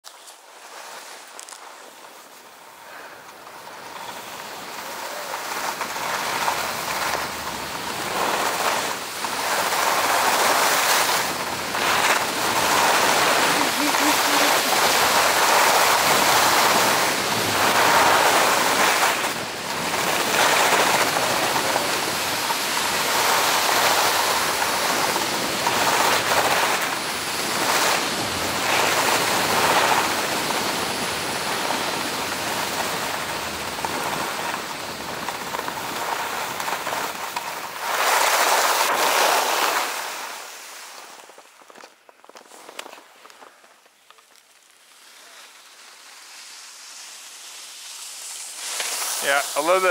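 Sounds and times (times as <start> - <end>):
skis scraping on snow: 0.0 - 49.9.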